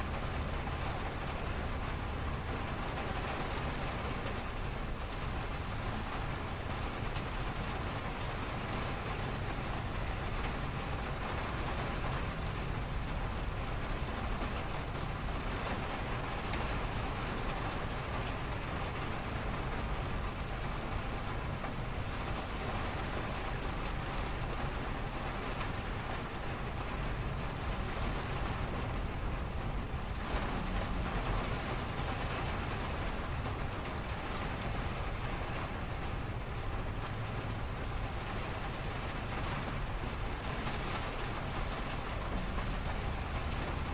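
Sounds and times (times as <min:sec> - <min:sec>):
low rumble of traffic: 0:00.0 - 0:43.9
rain on a window: 0:00.0 - 0:43.9.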